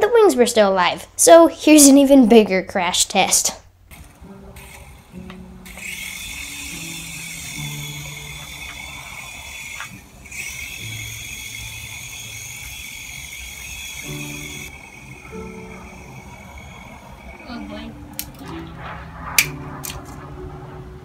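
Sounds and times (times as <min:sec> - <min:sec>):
rc helicopter motor whine: 0:03.9 - 0:18.4.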